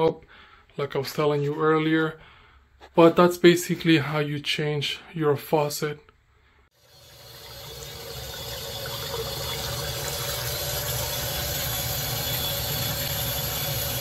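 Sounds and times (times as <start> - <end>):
tap water pouring into basin: 6.8 - 14.0.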